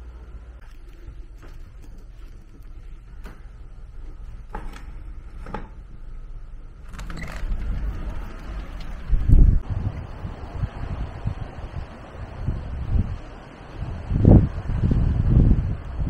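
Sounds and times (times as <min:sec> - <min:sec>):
wind buffeting microphone: 0:06.8 - 0:16.0.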